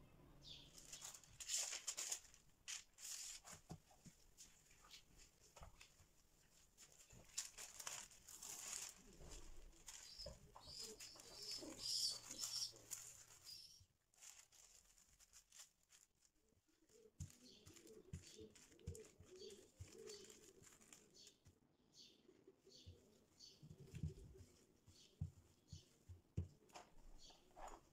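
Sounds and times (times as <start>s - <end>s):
plastic bag crinkling: 0.7s - 3.8s, 5.6s - 21.4s
pigeon cooing: 8.6s - 13.8s, 16.8s - 21.4s.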